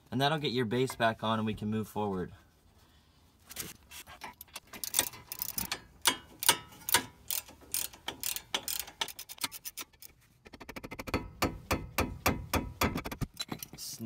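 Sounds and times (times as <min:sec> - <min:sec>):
socket ratchet clicking: 0:04.8 - 0:11.2.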